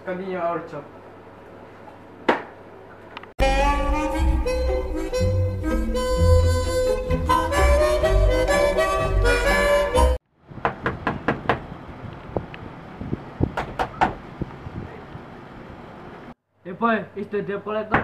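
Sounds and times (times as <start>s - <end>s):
background music: 3.4s - 10.2s
knocking on a door: 10.6s - 11.6s.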